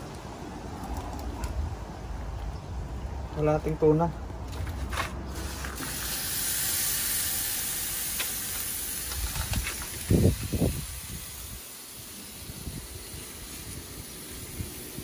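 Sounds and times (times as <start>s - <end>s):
fish sizzling on a grill: 5.3s - 15.0s.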